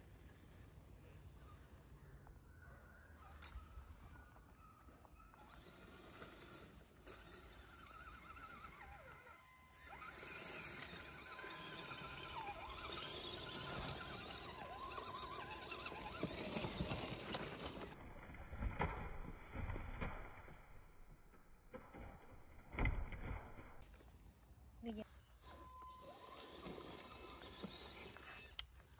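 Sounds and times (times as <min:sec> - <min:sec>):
electric motor and gear whine: 0:03.4 - 0:18.0, 0:25.4 - 0:28.8
toy car knocking over rocks: 0:09.8 - 0:18.0, 0:26.2 - 0:28.6.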